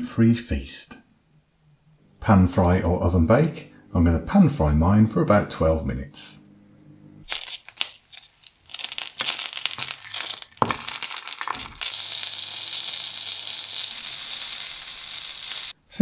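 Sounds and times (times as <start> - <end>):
sausages sizzling in oil: 7.2 - 15.8.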